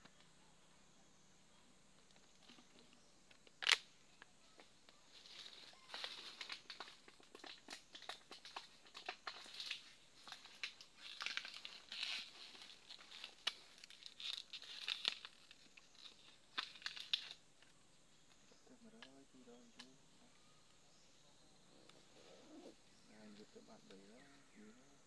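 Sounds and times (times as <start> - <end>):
dry leaves rustling: 5.0 - 17.4.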